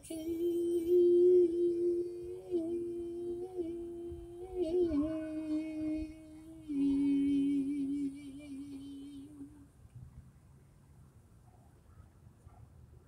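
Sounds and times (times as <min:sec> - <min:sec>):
person humming gospel melody: 0:00.0 - 0:09.8.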